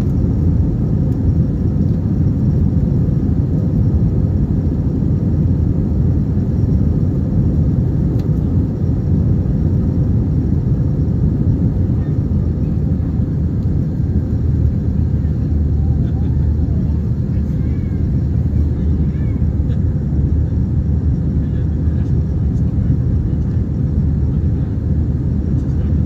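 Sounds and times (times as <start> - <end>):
aircraft engine rumble: 0.0 - 26.0.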